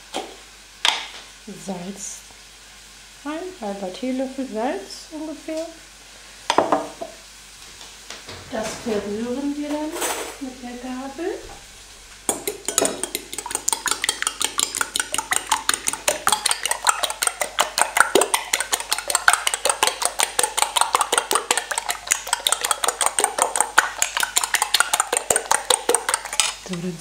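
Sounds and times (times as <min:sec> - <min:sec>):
fork clinking on glass bowl: 0:12.3 - 0:26.6.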